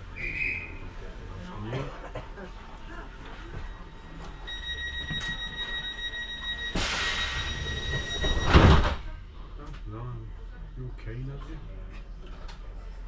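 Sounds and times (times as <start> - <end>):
high-pitched warning tone: 4.4 - 8.6
doors shutting with a thud: 7.9 - 9.1.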